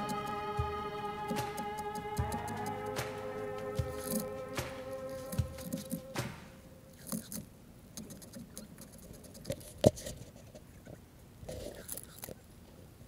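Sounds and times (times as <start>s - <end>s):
background music: 0.0s - 7.0s.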